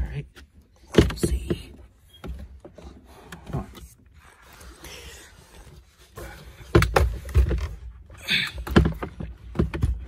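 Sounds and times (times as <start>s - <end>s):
plastic dashboard knocking and scraping: 0.8s - 4.0s, 8.6s - 10.0s.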